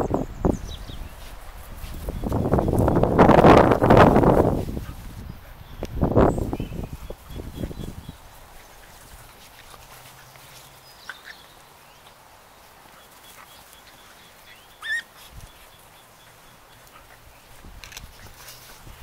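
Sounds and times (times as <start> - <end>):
puppy squeaking: 14.8 - 15.1.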